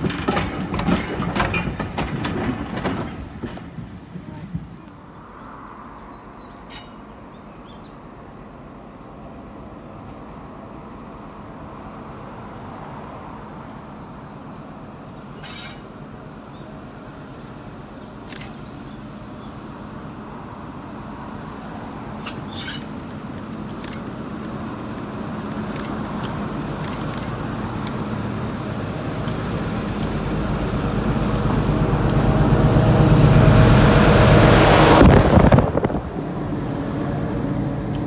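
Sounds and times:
diesel train engine drone: 15.8 - 38.0.

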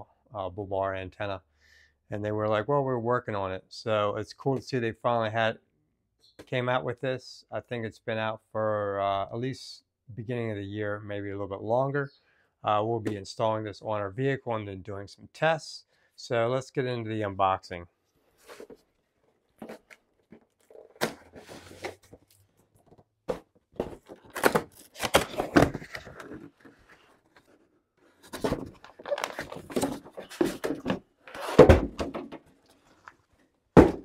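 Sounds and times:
cardboard flaps scraping and rustling: 19.6 - 22.5, 23.3 - 32.1
plastic rustling: 23.7 - 31.6
box knocking on table: 33.8 - 34.0.

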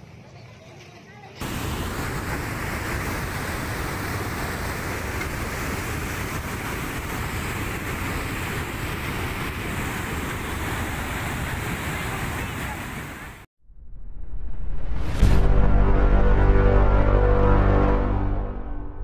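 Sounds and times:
floodwater rushing: 1.4 - 13.5.

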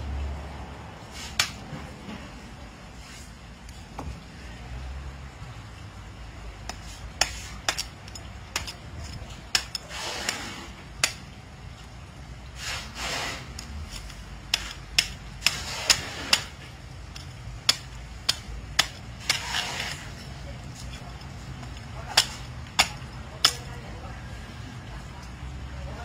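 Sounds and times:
knife rasping scrapes: 6.7 - 11.2, 12.6 - 23.7.

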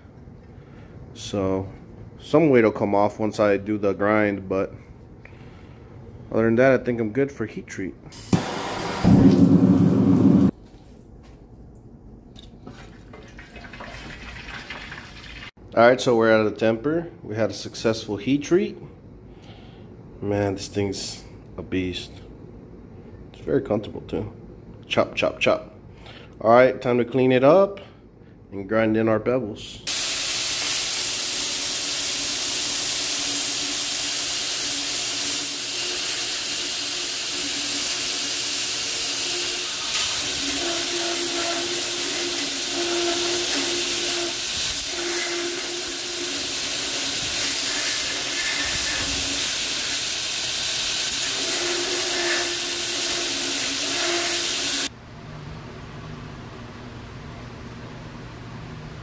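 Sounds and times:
belt grinder grinding steel: 35.4 - 50.0, 51.0 - 54.9.

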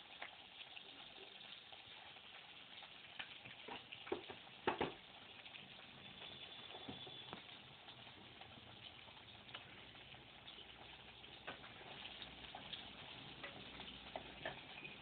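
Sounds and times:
faint room hiss: 0.0 - 15.0.

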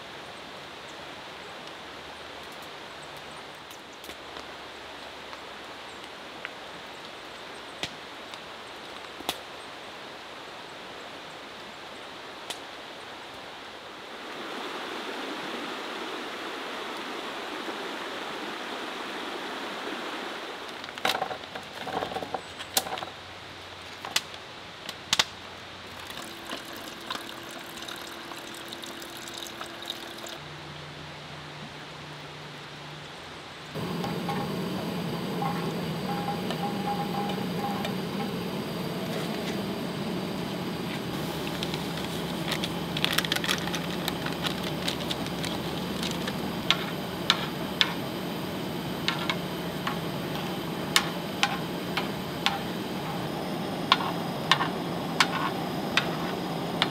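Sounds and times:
rushing water: 25.8 - 30.4
steady hiss: 33.7 - 56.9.

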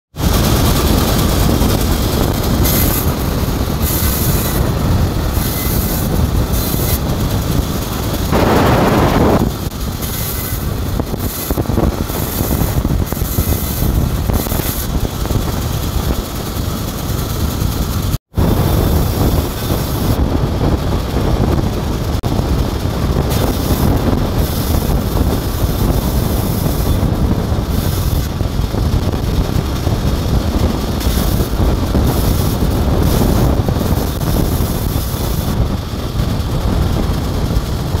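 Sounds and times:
band saw cutting timber: 0.2 - 17.4, 23.3 - 28.4, 30.9 - 35.6.

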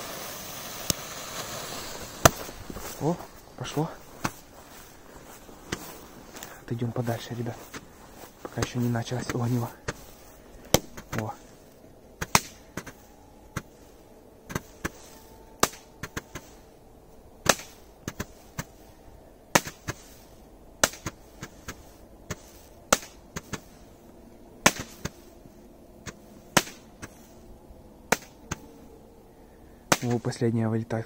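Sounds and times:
roman candles popping: 0.0 - 16.8.

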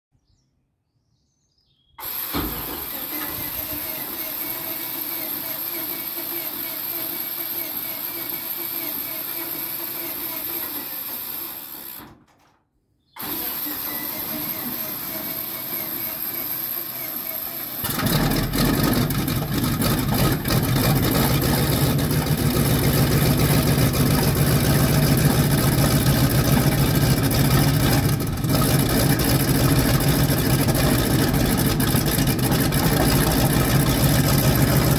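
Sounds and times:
tank engine starting and running: 2.0 - 12.3, 13.2 - 34.9
steady mechanical drone: 13.2 - 34.9.

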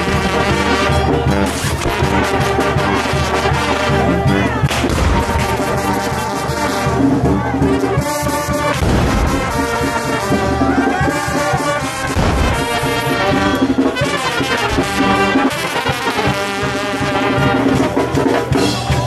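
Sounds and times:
brass band playing: 0.0 - 19.0
deep thumps: 8.8 - 10.0, 12.0 - 13.0.

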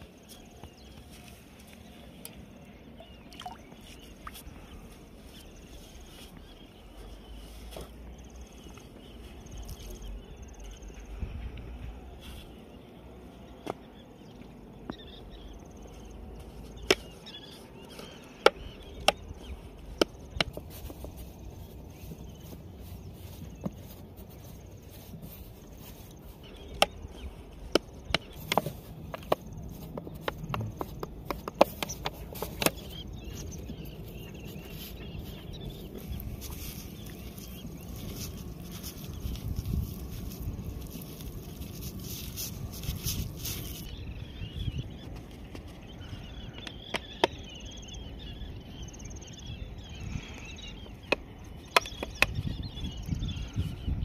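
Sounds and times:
fingers kneading wet dough: 15.8 - 43.9.

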